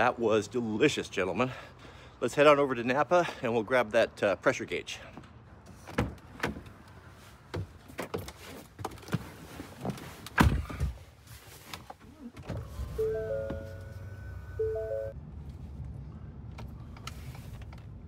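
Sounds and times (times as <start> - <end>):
clicks and knocks of climbing into truck: 7.5 - 12.6.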